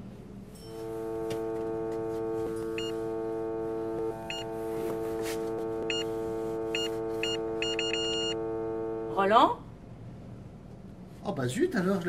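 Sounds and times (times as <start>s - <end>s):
metal detector beeps: 2.5s - 3.2s, 4.2s - 8.4s.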